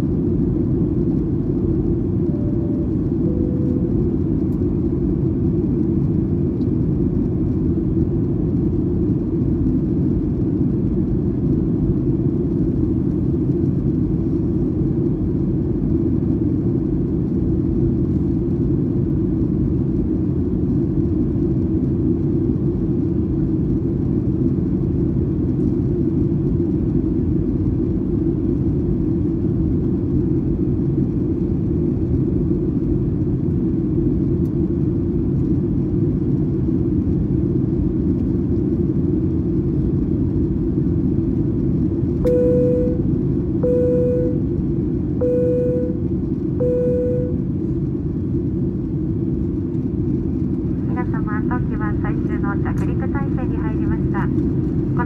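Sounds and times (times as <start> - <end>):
jet engines rumbling: 0.0 - 55.0.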